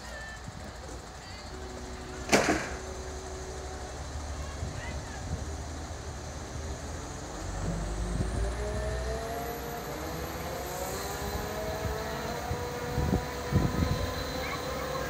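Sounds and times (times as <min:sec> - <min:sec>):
crane engine and hoist running: 0:00.0 - 0:15.0
sharp knocks: 0:02.3 - 0:02.8.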